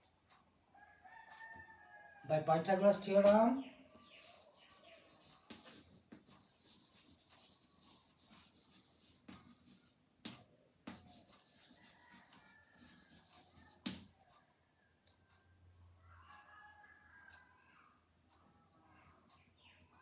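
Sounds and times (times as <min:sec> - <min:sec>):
chalk tapping on blackboard: 0:04.9 - 0:14.2.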